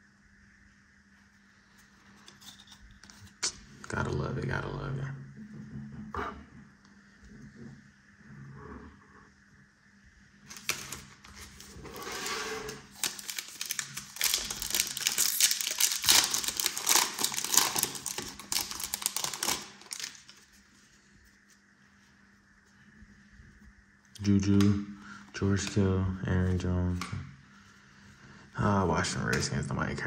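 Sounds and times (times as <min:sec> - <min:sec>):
foil wrapper crinkling: 0:10.5 - 0:21.4.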